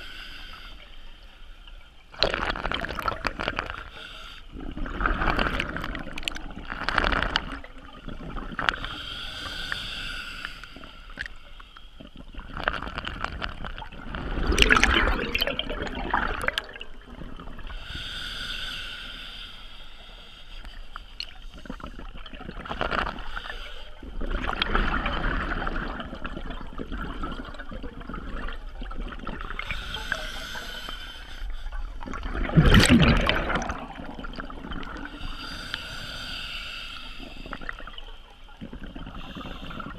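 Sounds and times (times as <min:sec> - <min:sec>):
regulator hiss on inhalation: 0:00.0 - 0:01.1, 0:08.8 - 0:12.0, 0:17.7 - 0:21.9, 0:29.6 - 0:31.9, 0:35.0 - 0:37.9
gurgling exhaled bubbles: 0:02.1 - 0:03.9, 0:04.5 - 0:09.0, 0:12.1 - 0:17.8, 0:24.0 - 0:30.2, 0:32.0 - 0:35.6.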